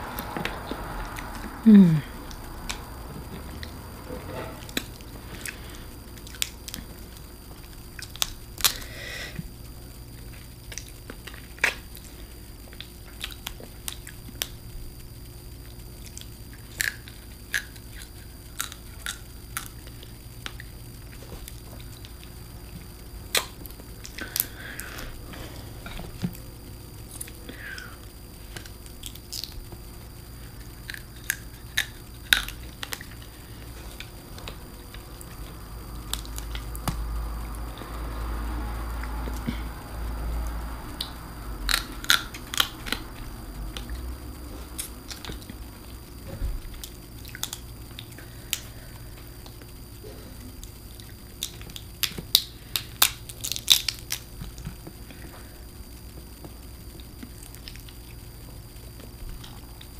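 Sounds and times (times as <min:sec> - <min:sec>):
low hum: 0:00.0 - 0:59.9
chewing: 0:02.3 - 0:09.5, 0:10.2 - 0:38.0, 0:40.4 - 0:55.4, 0:56.4 - 0:59.9
crab shell cracking: 0:41.7 - 0:43.1, 0:50.6 - 0:54.6.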